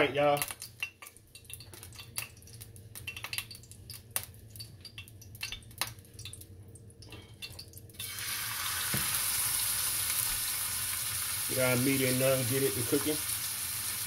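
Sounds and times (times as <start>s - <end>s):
meat sizzling in hot oil: 8.0s - 14.0s.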